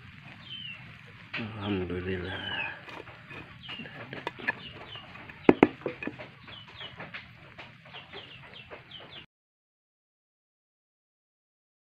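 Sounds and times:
chickens clucking and calling: 0.0s - 9.3s
sharp knocks: 3.7s - 7.2s.

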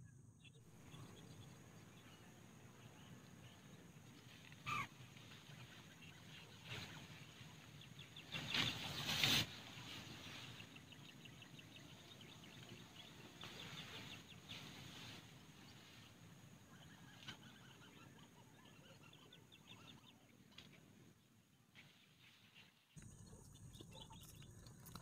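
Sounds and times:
rapid ticking animal calls: 4.5s - 5.0s, 23.0s - 25.0s
dry palm leaves rustling: 8.3s - 10.7s.

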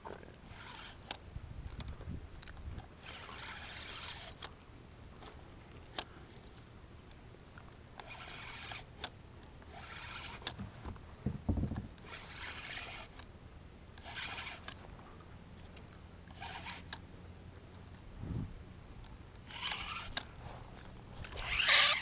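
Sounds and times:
fishing reel cranking: 0.4s - 2.0s, 3.0s - 4.5s, 8.0s - 10.6s, 12.0s - 13.3s, 13.9s - 14.8s, 16.3s - 17.1s, 19.4s - 22.0s.

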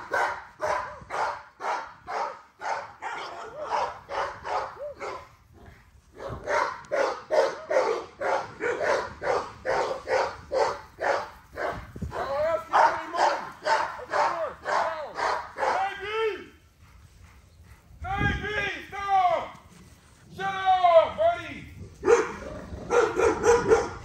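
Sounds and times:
puppies barking: 0.0s - 5.3s, 6.2s - 16.0s, 22.0s - 24.0s.

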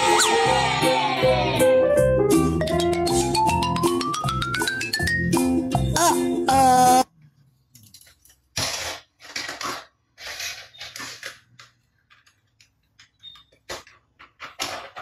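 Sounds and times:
background music: 0.0s - 7.0s
plastic toy scraping on table: 8.6s - 11.4s.

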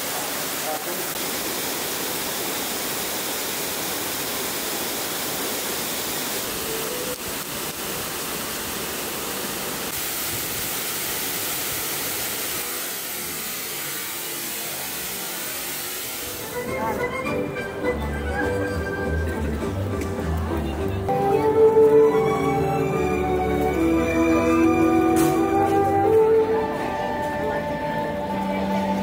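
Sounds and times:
falling water rushing: 0.0s - 16.8s.

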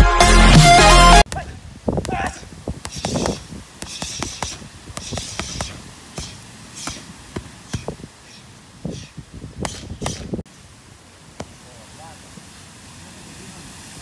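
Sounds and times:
boxing gloves striking mitts: 2.0s - 8.0s, 9.6s - 10.4s.

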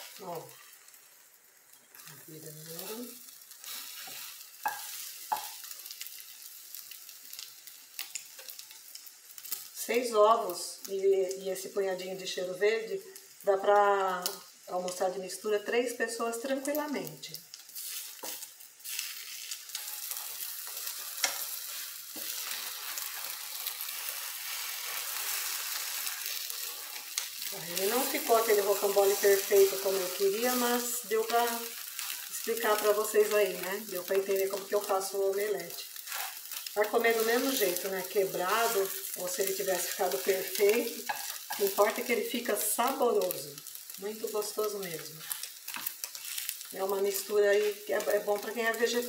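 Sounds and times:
eggs sizzling in a pan: 0.0s - 49.0s
utensils knocking a pan: 4.6s - 5.6s.

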